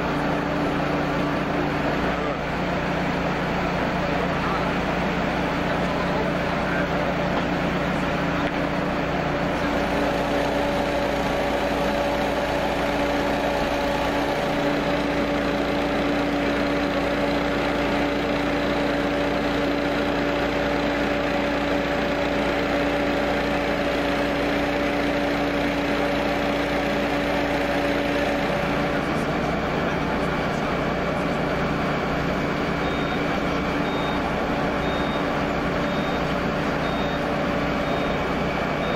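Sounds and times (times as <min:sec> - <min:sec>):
ventilation fan engine running: 0:00.0 - 0:38.9.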